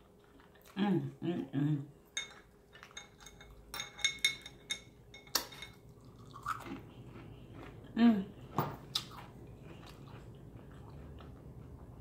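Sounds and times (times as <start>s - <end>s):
chewing: 0.0s - 0.8s, 5.8s - 12.0s.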